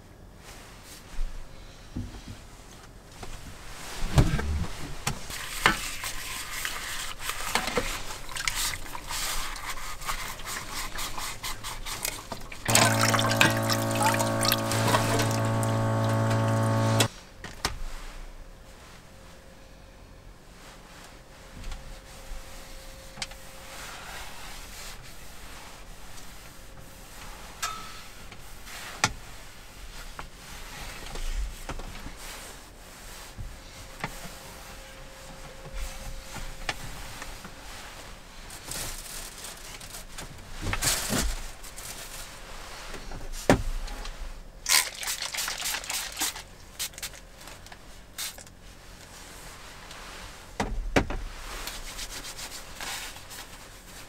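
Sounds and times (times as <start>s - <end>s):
paper tissue rustling: 37.0s - 40.2s.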